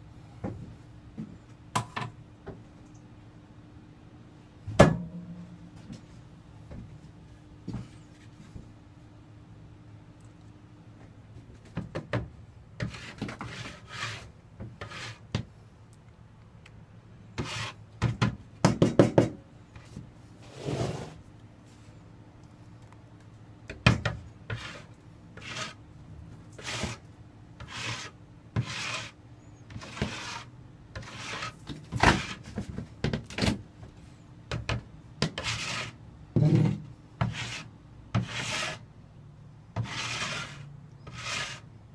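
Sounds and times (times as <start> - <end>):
trowel scraping adhesive: 27.6 - 31.6, 35.3 - 36.0, 39.8 - 41.7.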